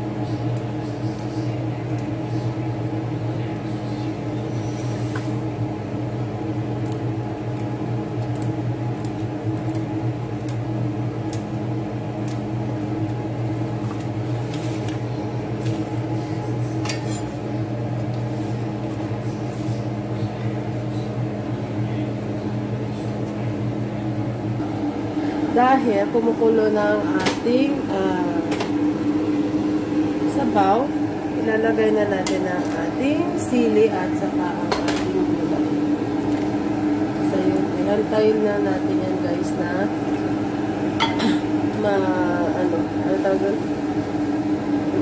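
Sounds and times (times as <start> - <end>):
electric motor hum: 0.0 - 45.0
leafy greens snapping and rustling: 13.8 - 16.0.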